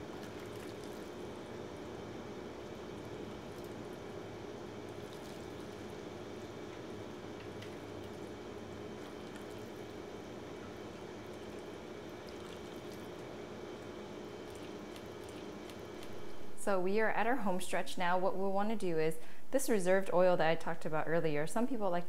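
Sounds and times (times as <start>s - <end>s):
steady low hum: 0.0s - 22.0s
liquid splashing and dripping: 0.1s - 1.9s, 4.8s - 16.2s.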